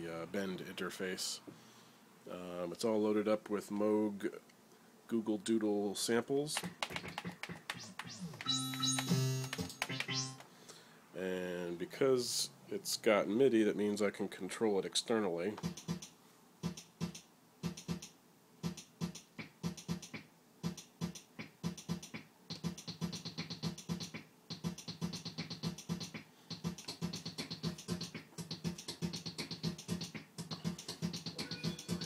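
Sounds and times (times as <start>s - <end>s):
electronic drum beat: 6.6s - 10.4s, 15.6s - 16.0s, 16.6s - 32.0s.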